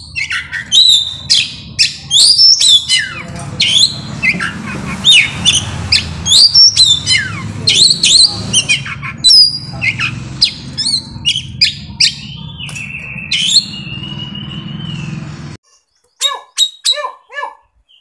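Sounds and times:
bird singing loud whistles: 0.0s - 15.5s, 16.2s - 18.0s.

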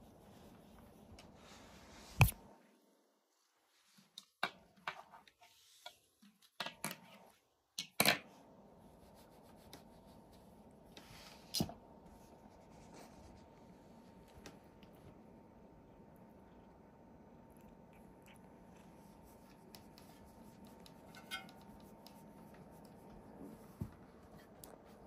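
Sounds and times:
faint steady hiss: 0.0s - 25.0s
light rustles and soft taps: 18.7s - 25.0s.

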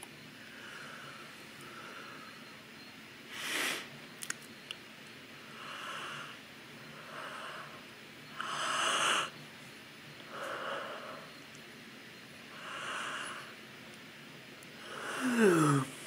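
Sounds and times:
woman yawning: 15.0s - 15.9s.

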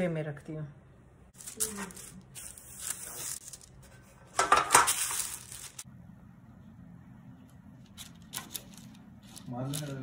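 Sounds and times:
metal baking trays clattering: 4.3s - 5.4s.

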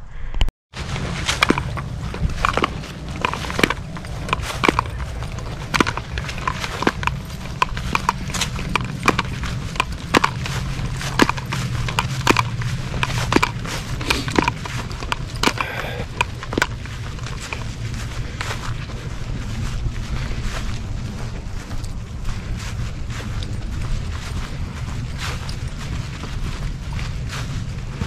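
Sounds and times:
wind rumble on microphone: 0.0s - 28.0s
footsteps on grass: 0.7s - 28.0s.

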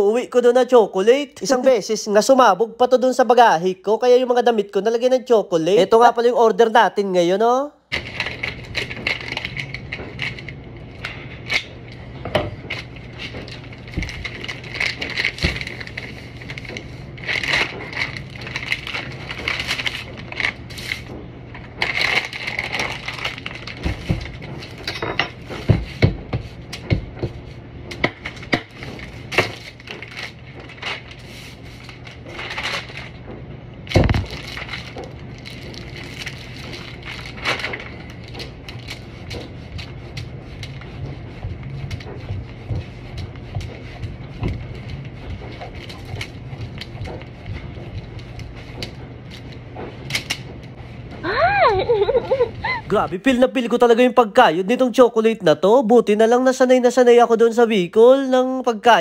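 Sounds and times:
steady low hum: 7.7s - 59.0s
wrapping crinkling and tearing: 7.9s - 12.0s, 12.7s - 24.9s, 28.2s - 33.2s, 33.8s - 50.7s
knife scraping chocolate: 38.1s - 49.8s.

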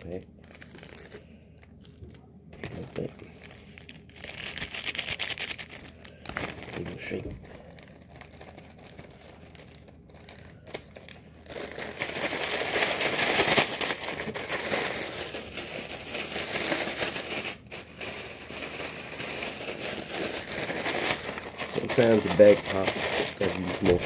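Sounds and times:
plastic bag shaken crinkling: 2.6s - 24.0s.

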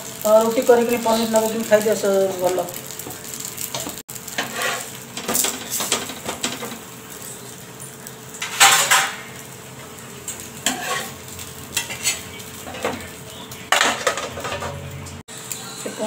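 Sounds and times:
faint sizzle: 0.0s - 16.0s
spatula scraping on iron griddle: 3.3s - 9.4s, 10.2s - 15.0s
metal scrape and clatter: 4.4s - 6.8s, 8.4s - 9.2s, 10.6s - 11.2s, 13.8s - 14.9s.

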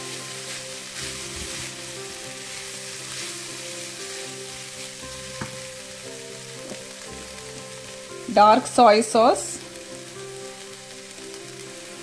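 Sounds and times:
spatula stirring in a pan: 0.0s - 7.3s
fried rice sizzling in a pan: 0.0s - 12.0s.

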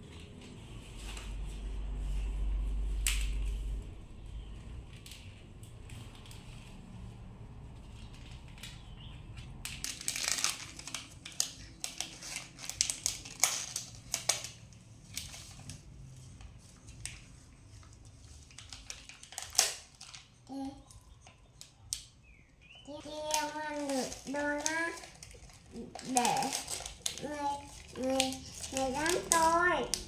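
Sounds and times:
plastic wrapper crinkling: 8.0s - 22.1s, 22.8s - 30.0s.

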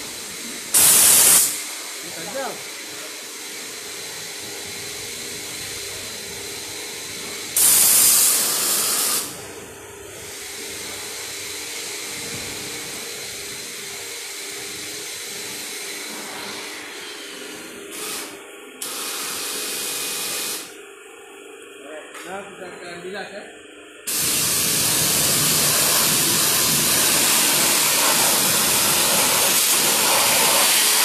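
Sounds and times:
pressure washer spraying water: 0.7s - 1.7s, 7.6s - 9.4s, 17.9s - 20.7s, 24.1s - 31.0s.

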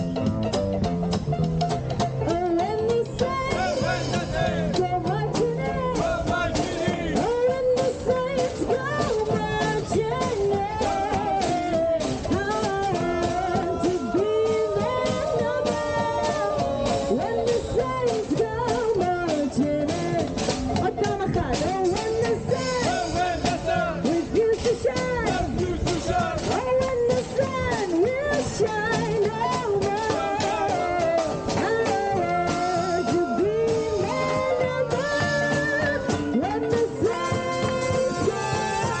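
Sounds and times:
swing band playing: 0.0s - 39.0s
washboard beat: 0.0s - 39.0s
person singing: 2.3s - 23.0s, 28.0s - 39.0s.

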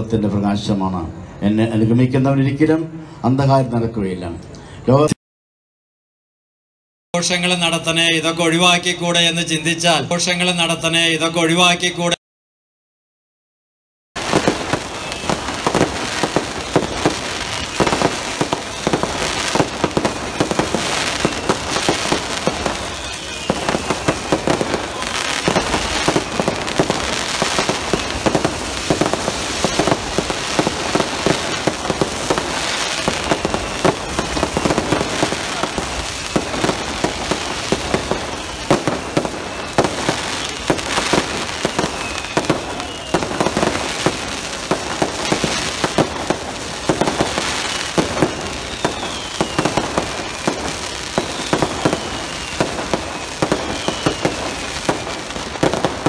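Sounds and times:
falling firework whistles: 14.2s - 56.0s
fireworks crackling and banging: 14.2s - 56.0s.

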